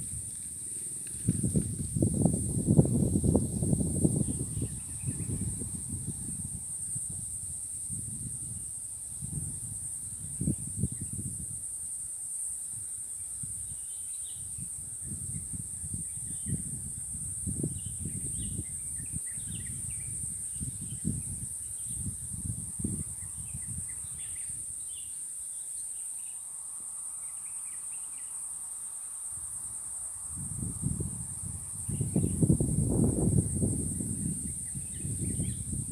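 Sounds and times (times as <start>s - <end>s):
wind gusting on microphone: 0.0s - 11.7s, 14.4s - 24.8s, 30.2s - 35.9s.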